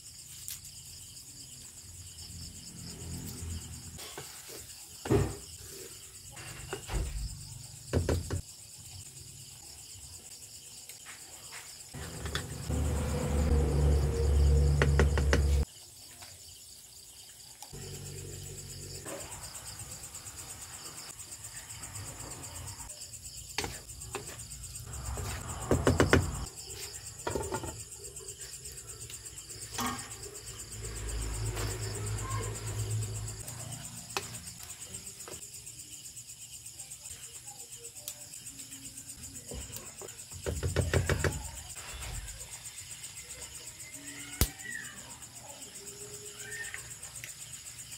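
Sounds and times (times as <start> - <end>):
crickets trilling: 0.0 - 47.9
knocks and bumps: 12.0 - 15.6, 25.0 - 26.5.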